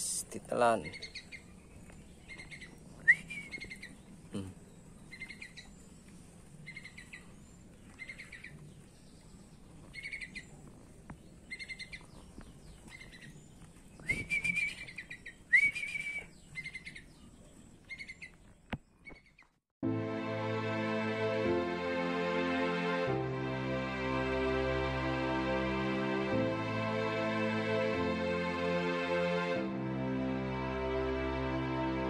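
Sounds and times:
birds chirping: 0.0s - 19.6s.

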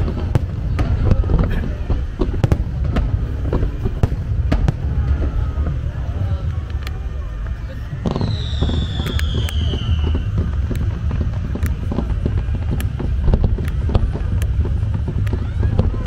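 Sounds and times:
fireworks bangs and crackles: 0.0s - 16.0s
low rumble: 0.0s - 16.0s
descending firework whistle: 3.6s - 16.0s.

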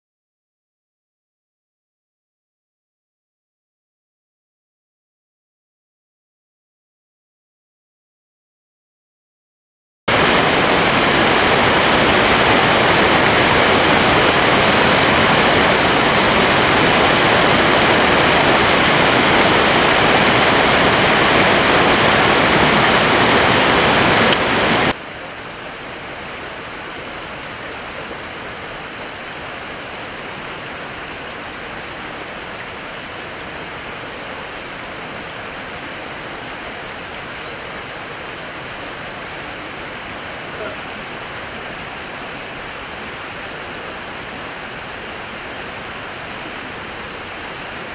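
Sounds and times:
stream water rushing: 10.1s - 47.9s.

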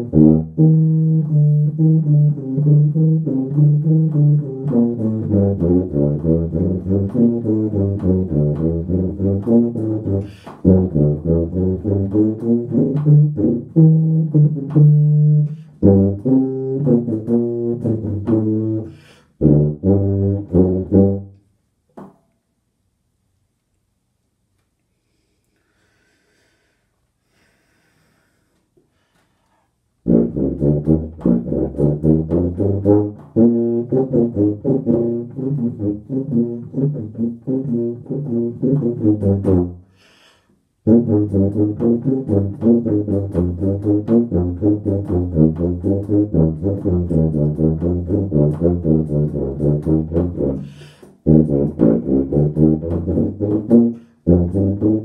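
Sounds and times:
tuba playing short notes: 0.0s - 21.5s, 30.0s - 40.0s, 40.8s - 55.0s.

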